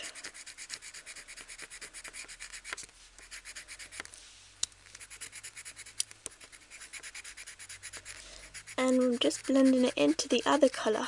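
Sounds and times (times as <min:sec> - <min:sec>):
pencil shading on card: 0:00.0 - 0:04.1, 0:04.9 - 0:11.0
pencil ticks: 0:00.0 - 0:11.0.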